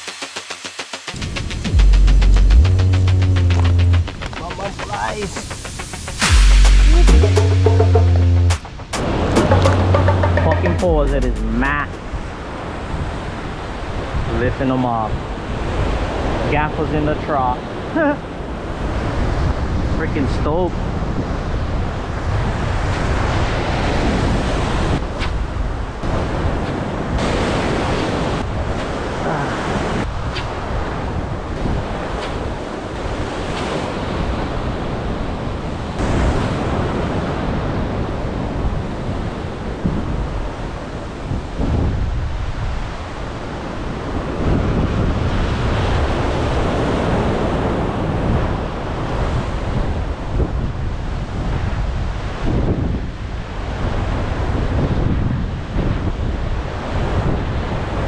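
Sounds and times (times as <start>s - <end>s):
ocean surf washing against shore: 0.0s - 58.0s
wind buffeting microphone: 17.7s - 20.0s, 20.6s - 58.0s.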